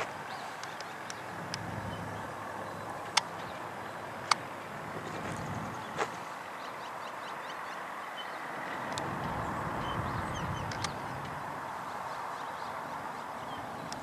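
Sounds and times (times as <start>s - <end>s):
sharp clicks: 3.1s - 3.6s, 10.6s - 11.4s.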